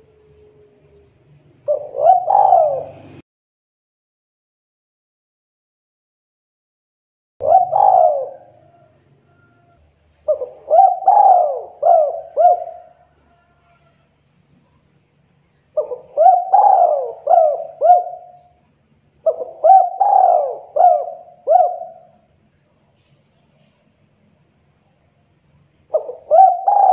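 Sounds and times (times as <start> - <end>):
dove cooing: 1.6 - 3.2, 7.4 - 14.0, 15.8 - 18.6, 19.2 - 22.3, 25.9 - 26.9.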